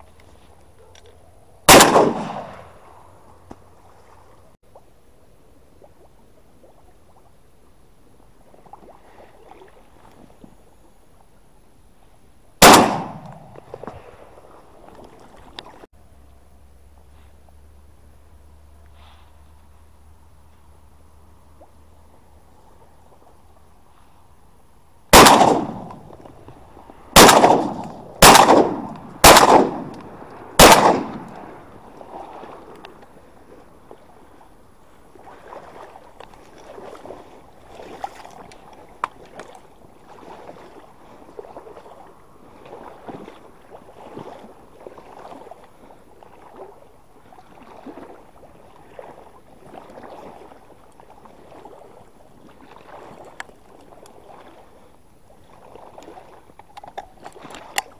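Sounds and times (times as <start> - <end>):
shotgun shots: 1.7 - 2.7, 12.6 - 13.5, 25.1 - 26.1, 27.2 - 30.0, 30.6 - 31.3
water sloshing: 12.6 - 15.9, 25.5 - 57.9.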